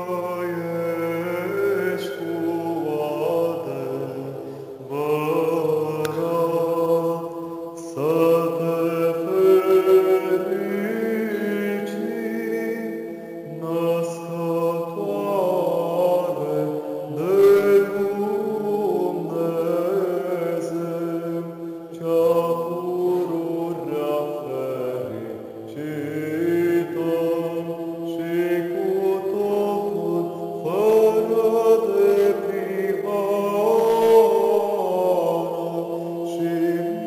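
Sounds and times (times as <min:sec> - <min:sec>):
man chanting melody: 0:00.0 - 0:07.2
man singing held drone: 0:00.0 - 0:37.0.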